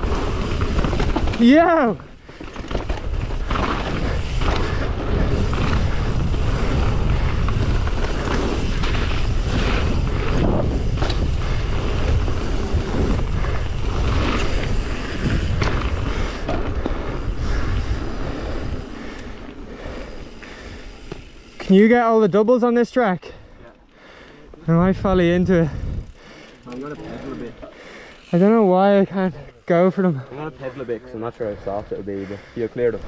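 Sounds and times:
bike knocking and rattling: 0:00.0 - 0:21.9, 0:24.9 - 0:28.6
bike tyres rolling over stones: 0:00.0 - 0:23.3, 0:24.0 - 0:33.0
wind rumble on microphone: 0:03.0 - 0:18.9, 0:24.7 - 0:26.2.

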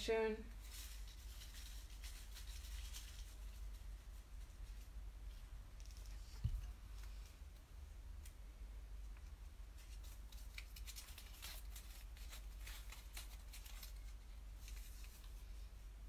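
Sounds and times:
dry rustles and clicks: 0:09.0 - 0:15.4.

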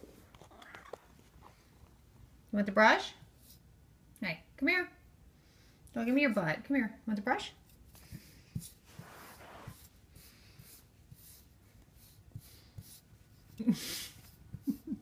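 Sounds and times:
brush rustling through cat fur: 0:07.7 - 0:15.0.

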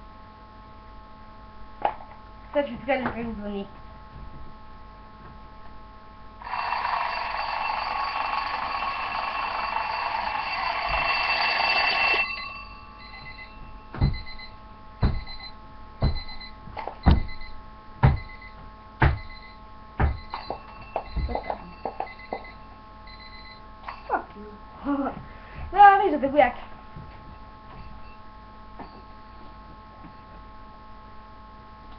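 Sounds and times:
mechanical alarm clock ringing: 0:06.4 - 0:14.6, 0:20.2 - 0:24.2.

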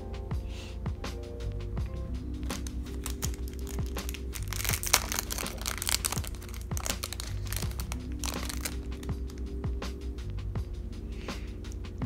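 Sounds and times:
background music with low beat: 0:00.0 - 0:12.0
plastic bags crinkling: 0:02.5 - 0:09.1.

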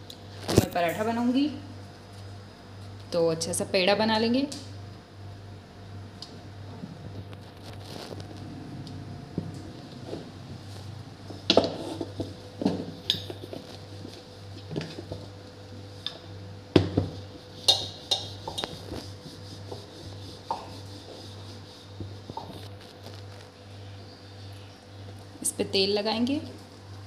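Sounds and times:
rolling pin rolling dough: 0:09.3 - 0:15.3, 0:16.9 - 0:23.4.

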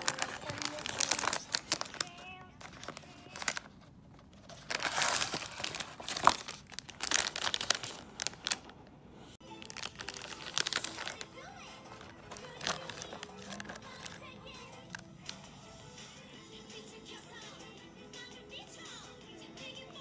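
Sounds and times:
cardboard box rustling: 0:00.0 - 0:02.0, 0:02.6 - 0:07.8, 0:09.8 - 0:11.2, 0:11.9 - 0:14.2
foil wrapper crinkling: 0:00.0 - 0:08.8, 0:09.5 - 0:14.3.

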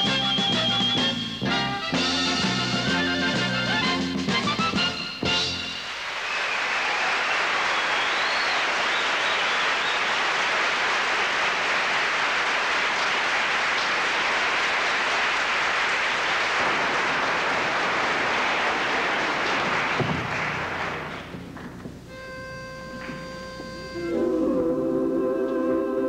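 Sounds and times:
audience applauding: 0:05.5 - 0:22.1
thump: 0:20.0 - 0:20.3.

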